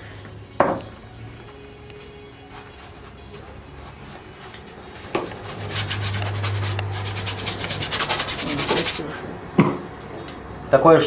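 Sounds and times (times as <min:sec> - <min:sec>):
paintbrush scrubbing paint: 0:02.4 - 0:09.2.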